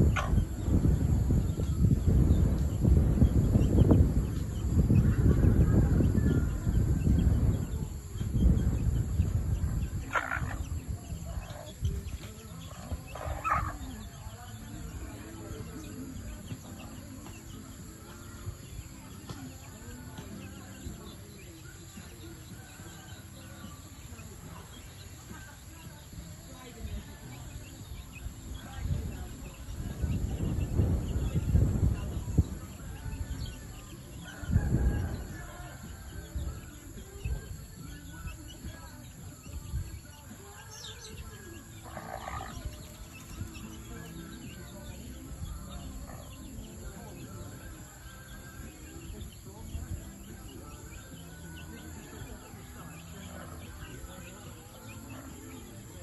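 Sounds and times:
chickens chirping: 0:00.0 - 0:56.0
chickens scratching soil: 0:09.8 - 0:18.0, 0:39.9 - 0:56.0.

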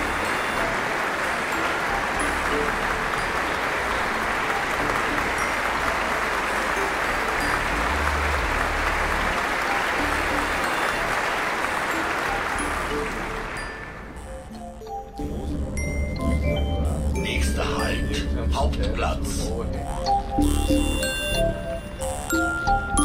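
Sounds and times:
audience applauding: 0:00.0 - 0:14.6.

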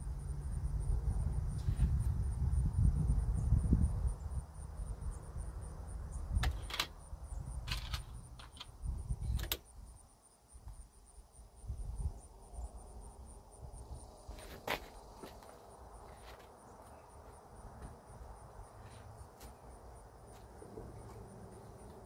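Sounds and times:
insects chirping: 0:00.0 - 0:22.0
sharp clicks and knocks: 0:06.4 - 0:07.0, 0:07.6 - 0:09.7.

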